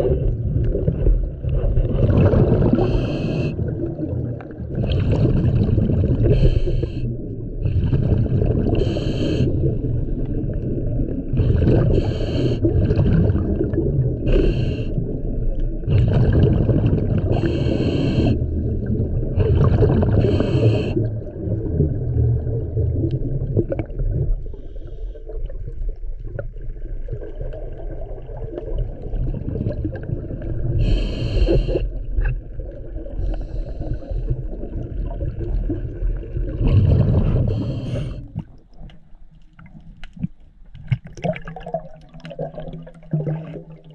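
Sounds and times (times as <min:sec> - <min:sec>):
exhaled bubbles rumbling: 0:00.0 - 0:43.9
regulator inhalation hiss: 0:02.9 - 0:03.5, 0:08.8 - 0:09.6, 0:11.9 - 0:12.7, 0:14.3 - 0:14.9, 0:17.3 - 0:18.4, 0:20.2 - 0:21.0, 0:30.8 - 0:31.8, 0:37.5 - 0:38.2.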